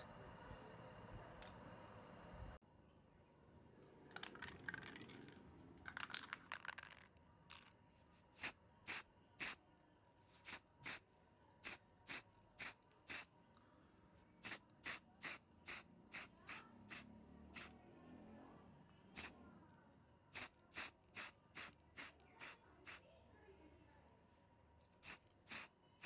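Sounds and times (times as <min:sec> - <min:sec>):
spray paint can spraying: 0:04.2 - 0:05.3, 0:05.9 - 0:07.7, 0:08.4 - 0:09.6, 0:10.3 - 0:11.0, 0:11.6 - 0:13.3, 0:14.4 - 0:17.7, 0:20.3 - 0:23.0, 0:25.0 - 0:25.7.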